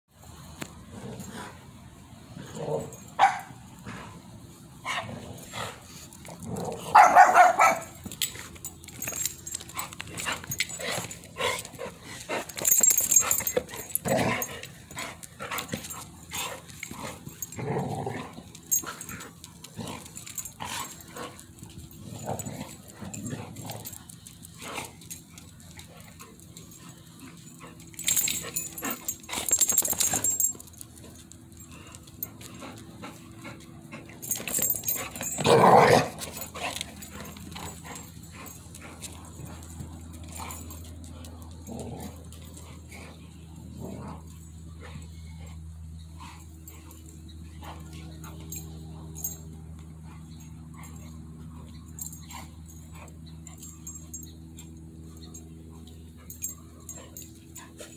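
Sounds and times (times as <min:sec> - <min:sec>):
dogs play growling: 0:00.2 - 0:57.9
dogs barking: 0:03.1 - 0:03.6, 0:06.9 - 0:08.0.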